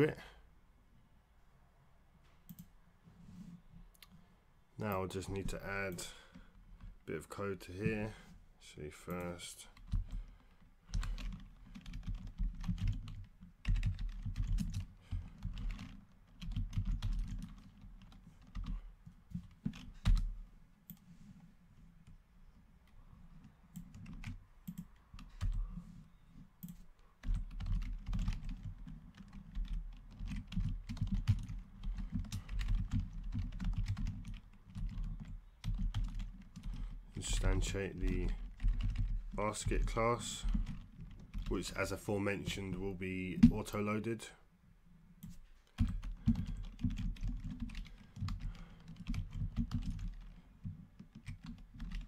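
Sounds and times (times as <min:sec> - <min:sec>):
typing on computer keyboard: 0:10.9 - 0:18.8, 0:23.7 - 0:25.6, 0:26.6 - 0:37.0, 0:38.0 - 0:39.2, 0:40.4 - 0:41.5, 0:45.2 - 0:52.0.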